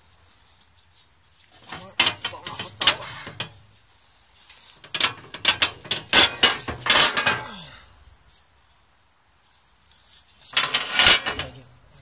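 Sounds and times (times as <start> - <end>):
metal step clicking and clattering: 1.6 - 3.6, 4.8 - 7.6, 10.5 - 11.7.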